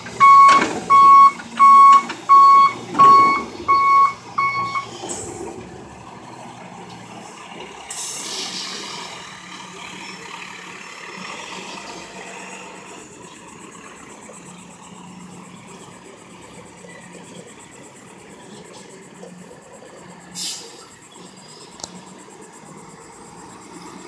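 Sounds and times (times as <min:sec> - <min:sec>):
diesel truck engine humming: 0:00.0 - 0:24.0
air brake hiss: 0:07.9 - 0:09.2, 0:20.4 - 0:20.9.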